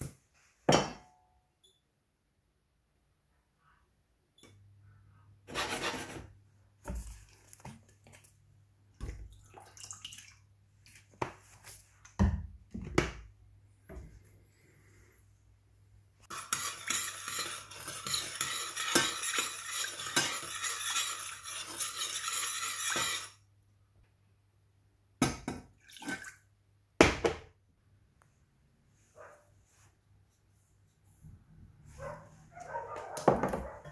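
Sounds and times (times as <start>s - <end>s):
dishes and utensils clinking: 16.3s - 23.3s.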